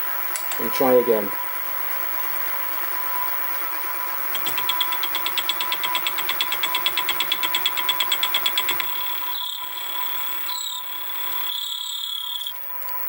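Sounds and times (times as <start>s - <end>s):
milling machine motor hum: 4.2s - 11.8s
fly cutter ticking on metal: 4.4s - 9.1s.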